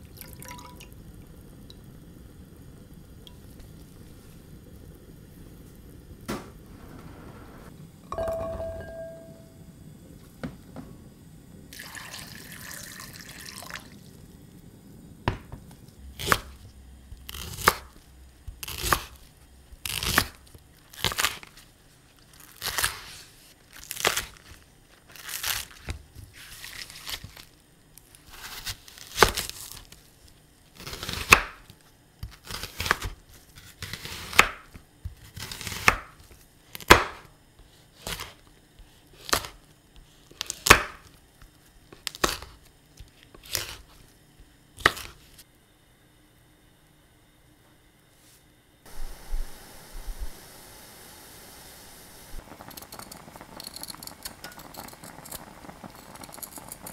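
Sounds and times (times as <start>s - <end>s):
water pouring into glass bowl: 0.0s - 1.0s, 11.7s - 14.0s.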